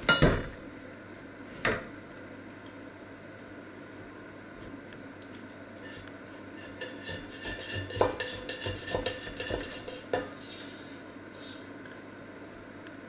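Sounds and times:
knife scraping metal pot: 0:05.8 - 0:10.8.

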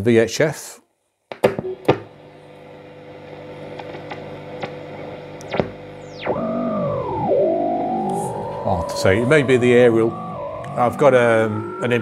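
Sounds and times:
radio mains hum and hiss: 0:01.4 - 0:12.0
warbling radio tuning tones: 0:04.6 - 0:12.0
radio whistle falling in pitch: 0:05.4 - 0:12.0.

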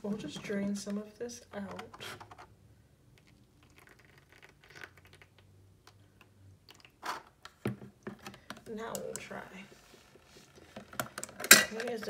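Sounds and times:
plastic scraping and crackling: 0:03.2 - 0:05.5, 0:06.7 - 0:12.0.

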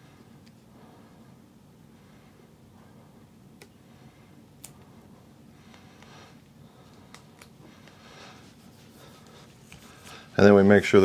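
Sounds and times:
soft rubbing: 0:04.8 - 0:11.0.

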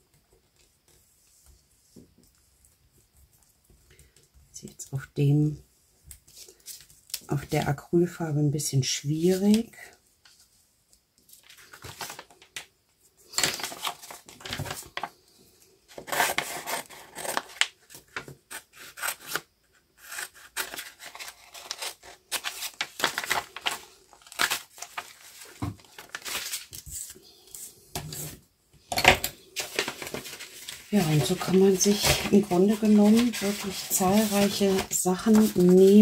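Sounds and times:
paper rustling: 0:11.2 - 0:12.7, 0:13.4 - 0:15.2, 0:20.0 - 0:28.3, 0:29.5 - 0:36.0.

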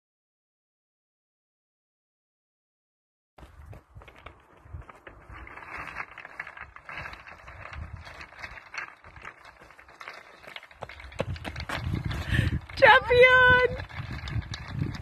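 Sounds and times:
footsteps crunching on stones: 0:03.4 - 0:12.6
loose stones clattering: 0:04.1 - 0:15.0.

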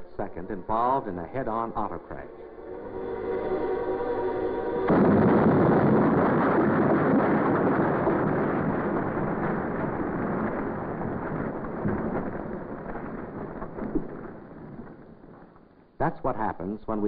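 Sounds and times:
car crash: 0:04.0 - 0:15.8.

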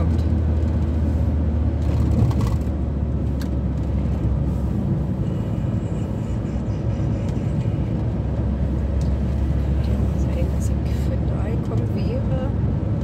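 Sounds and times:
road noise: 0:00.0 - 0:13.0
van engine drone: 0:00.0 - 0:13.0.

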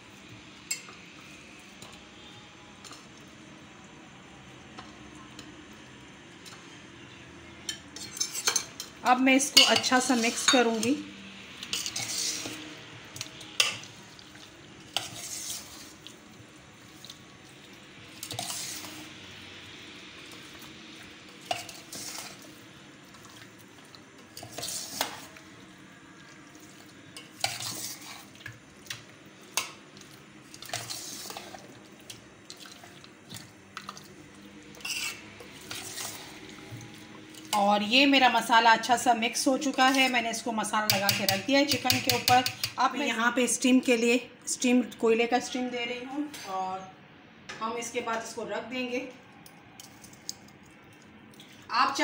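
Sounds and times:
spoon clinking and scraping bowl: 0:07.6 - 0:11.0, 0:11.6 - 0:13.9, 0:14.9 - 0:15.9, 0:18.2 - 0:19.1, 0:21.4 - 0:22.4, 0:24.4 - 0:25.4, 0:27.2 - 0:29.8, 0:34.7 - 0:36.6, 0:40.9 - 0:42.8.

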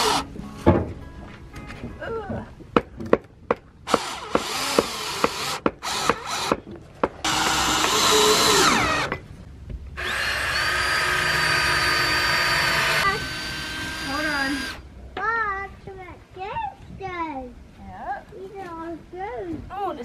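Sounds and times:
cordless drill driving screws: 0:00.0 - 0:00.2, 0:03.9 - 0:06.6, 0:07.2 - 0:09.2, 0:10.0 - 0:14.8.

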